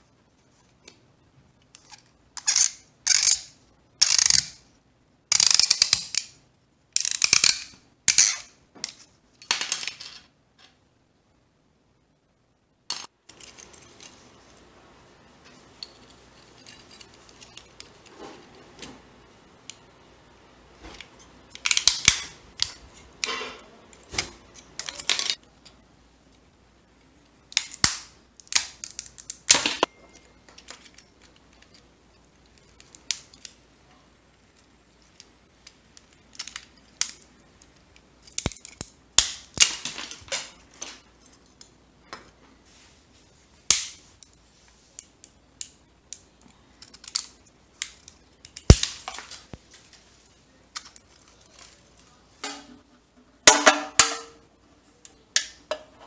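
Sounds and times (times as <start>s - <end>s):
brittle objects cracking: 27.5s - 29.9s, 38.2s - 40.4s, 45.5s - 50.0s.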